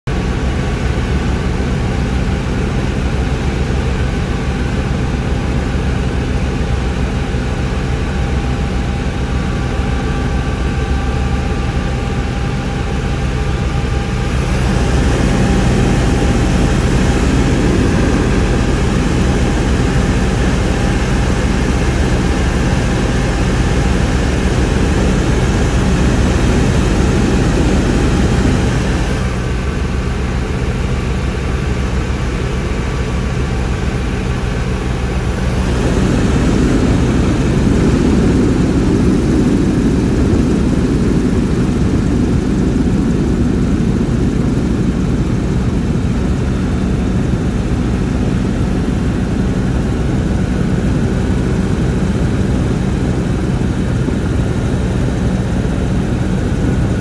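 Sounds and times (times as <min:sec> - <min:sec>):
helicopter rotor and engine drone: 0:00.1 - 0:57.0
steady whining tones: 0:00.1 - 0:57.0
rushing noise: 0:33.8 - 0:46.4.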